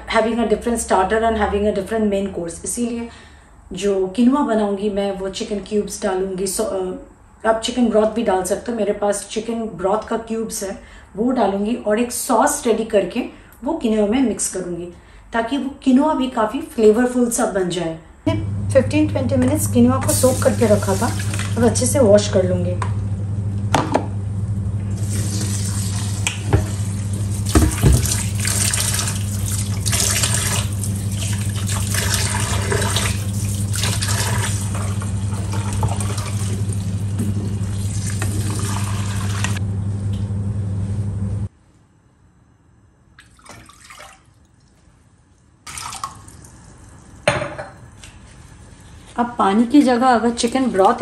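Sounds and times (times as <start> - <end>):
steady low hum: 18.0 - 43.0
tap water running into sink: 19.4 - 21.7, 25.1 - 39.6.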